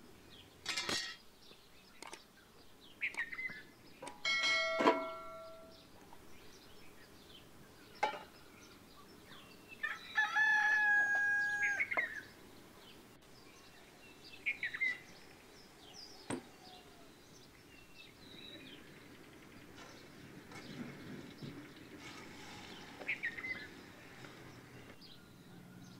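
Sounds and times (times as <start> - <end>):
small birds chirping: 0.0 - 25.9
rooster crowing: 9.8 - 12.1, 25.0 - 25.9.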